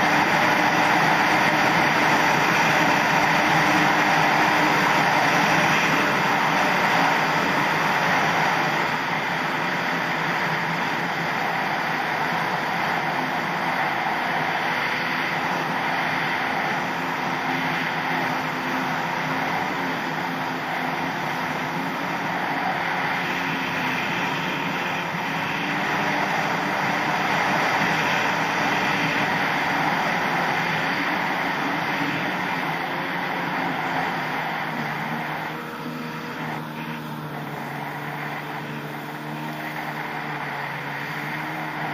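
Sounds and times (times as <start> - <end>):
jet ski engine running: 0.0 - 41.9.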